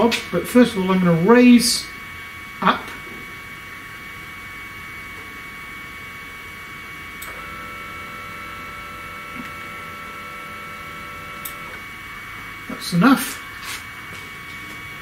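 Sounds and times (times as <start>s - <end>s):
stepper motor two-tone whine: 0.0s - 13.6s
motor click: 7.2s - 7.5s, 11.3s - 11.8s.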